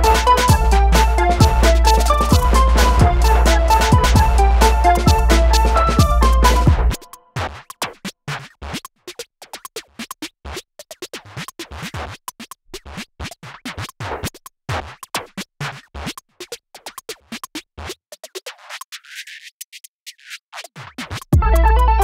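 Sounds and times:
electronic music percussive hits: 0.0 - 7.3.

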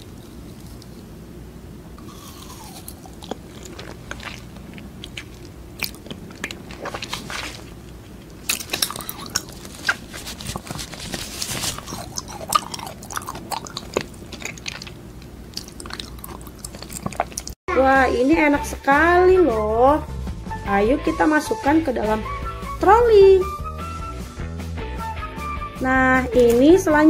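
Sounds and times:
mouth sounds eating jelly: 2.0 - 10.8, 11.5 - 17.6.

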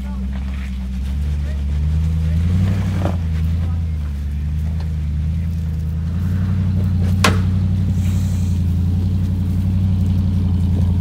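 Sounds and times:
engine running at low revs: 0.0 - 11.0
sharp knock: 7.2 - 7.6.

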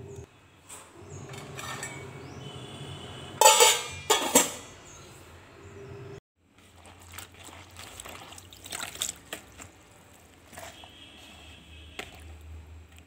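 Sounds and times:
chillies rustling in metal jar: 6.6 - 12.5.

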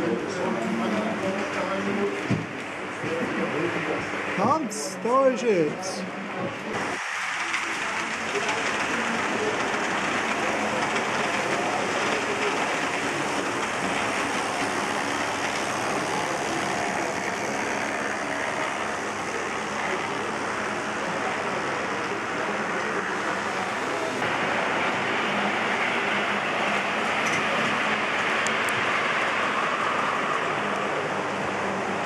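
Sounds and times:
murmur of voices: 0.0 - 28.4
model trains rolling: 6.8 - 32.0.

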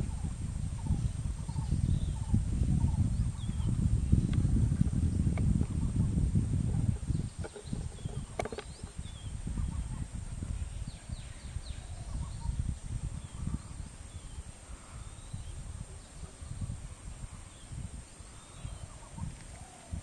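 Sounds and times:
high insect drone: 0.0 - 20.0
faint bird chirps: 6.8 - 20.0.

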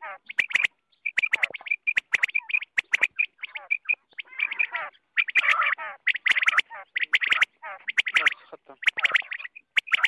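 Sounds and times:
quail calling: 0.0 - 10.0.

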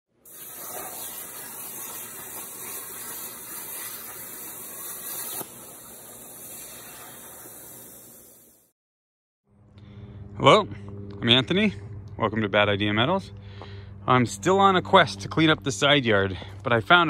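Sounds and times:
air hissing through torch: 0.2 - 8.7
plasma cutter hissing: 0.2 - 8.7.

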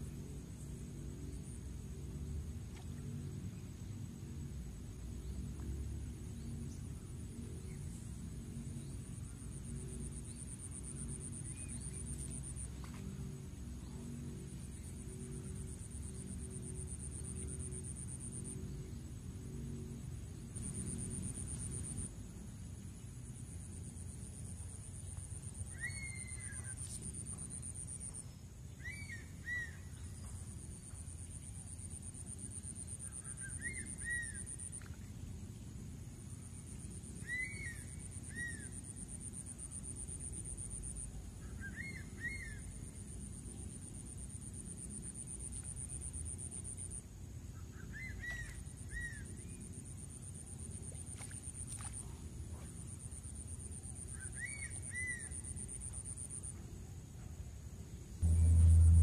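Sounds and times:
low outdoor rumble: 0.0 - 59.0
steady high buzz: 58.0 - 59.0.

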